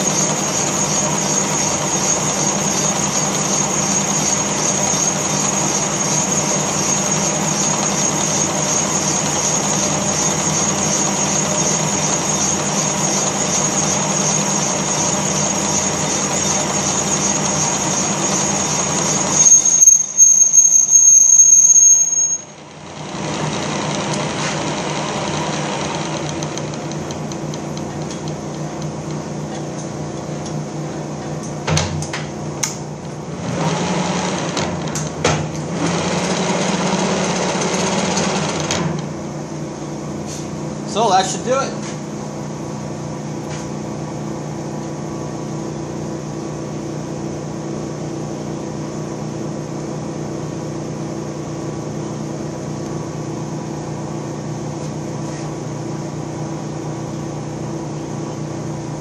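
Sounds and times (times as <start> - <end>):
boring machine with high whine: 0.0 - 27.5.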